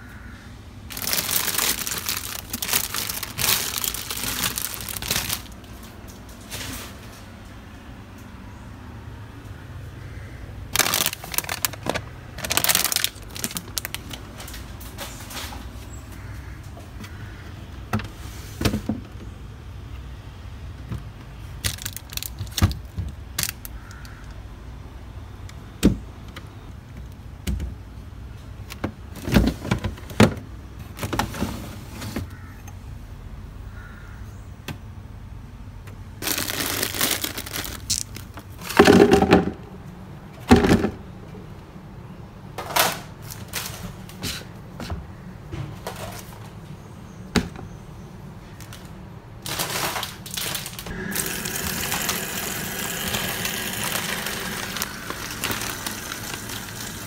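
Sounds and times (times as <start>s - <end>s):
plastic bags crinkling: 0.9s - 6.1s, 10.7s - 14.8s, 21.6s - 24.0s, 36.2s - 39.2s, 48.6s - 57.0s.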